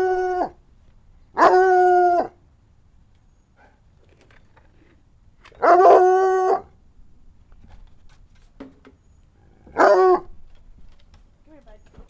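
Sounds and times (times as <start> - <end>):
dog howling: 0.0 - 0.6, 1.4 - 2.4, 5.6 - 6.7, 9.6 - 10.3.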